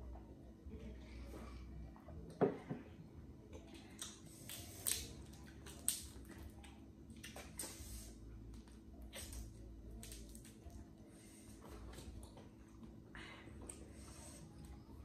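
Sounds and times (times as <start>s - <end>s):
wet squishing and chewing: 3.5s - 11.0s.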